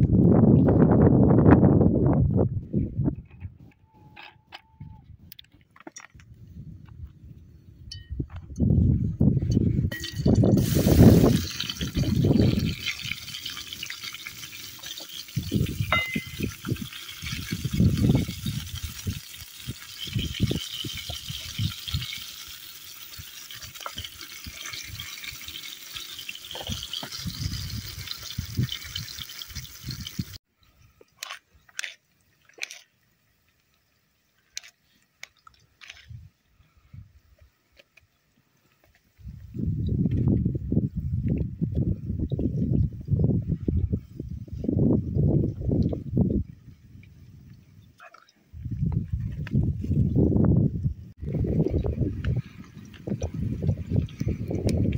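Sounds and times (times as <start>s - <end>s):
onions sizzling in hot oil: 10.0s - 30.4s.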